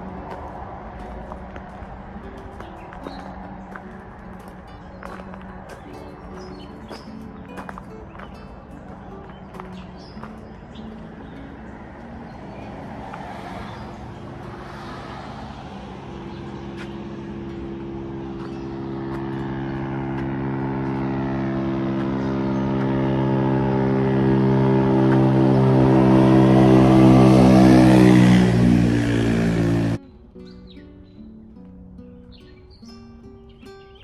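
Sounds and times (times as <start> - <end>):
background music with held notes: 0.0 - 12.9
footsteps on gravel: 0.0 - 26.4
low engine hum: 0.0 - 30.1
road traffic: 0.0 - 34.0.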